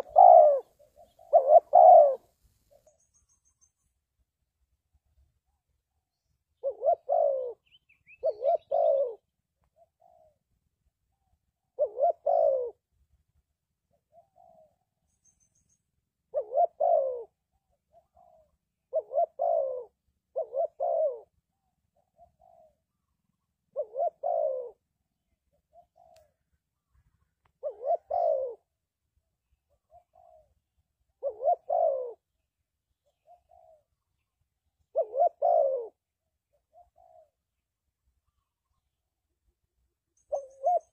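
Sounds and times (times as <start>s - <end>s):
dove cooing: 0.0s - 3.0s, 6.6s - 10.5s, 11.1s - 12.9s, 13.9s - 15.0s, 16.3s - 26.4s, 27.2s - 28.8s, 29.7s - 32.4s, 33.0s - 37.6s, 40.2s - 40.9s.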